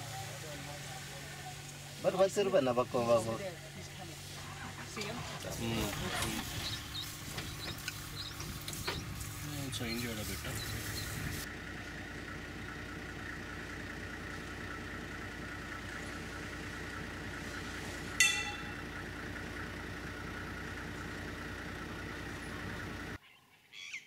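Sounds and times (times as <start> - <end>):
vehicle engine idling: 0.0 - 23.2
sharp ringing clink: 18.2 - 18.8.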